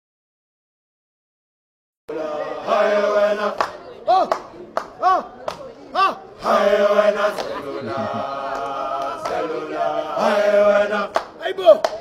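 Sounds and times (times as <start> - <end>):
choir singing held chord: 2.1 - 4.1, 6.0 - 11.4.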